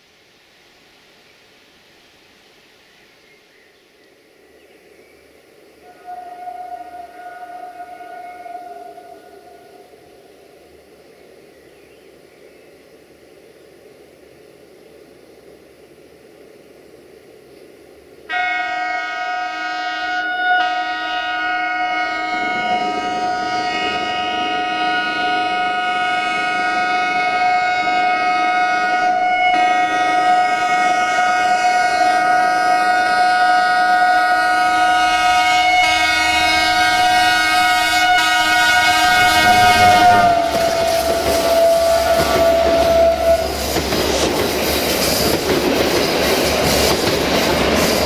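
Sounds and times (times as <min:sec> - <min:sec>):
train air horn blast: 0:05.8 - 0:09.8, 0:18.3 - 0:43.7.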